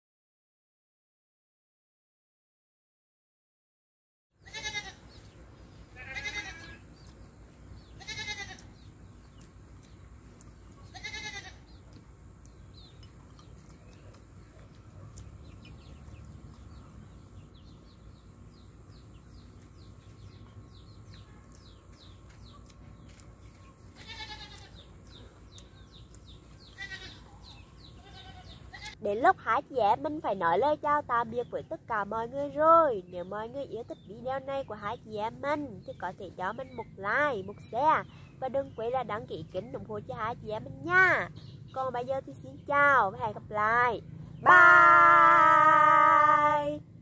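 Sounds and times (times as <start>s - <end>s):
quavering animal bleats: 4.4s - 5.1s, 5.9s - 6.9s, 7.9s - 8.7s, 10.8s - 11.7s, 24.0s - 24.9s, 26.7s - 27.3s, 28.0s - 29.0s.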